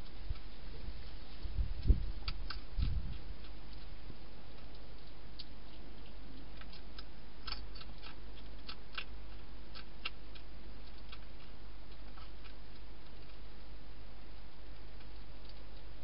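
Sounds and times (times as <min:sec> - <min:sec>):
hedgehog chewing crunchily: 0:00.0 - 0:16.0.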